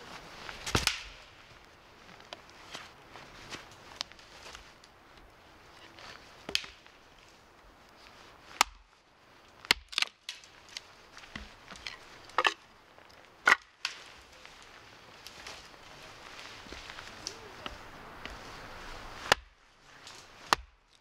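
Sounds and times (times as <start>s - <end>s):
axe chopping wood: 0.7s - 1.2s, 6.5s - 6.8s, 8.6s - 8.8s, 9.7s - 10.4s, 19.3s - 19.6s, 20.5s - 20.8s.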